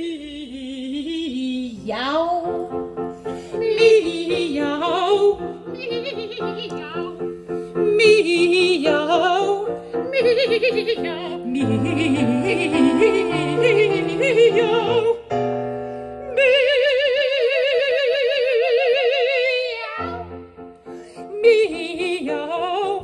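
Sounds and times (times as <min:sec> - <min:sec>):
women singing operatic duet: 0:00.0 - 0:02.7, 0:03.4 - 0:07.2, 0:07.8 - 0:15.3, 0:16.2 - 0:20.3, 0:21.2 - 0:23.0
digital piano accompaniment: 0:01.8 - 0:17.0, 0:19.6 - 0:23.0.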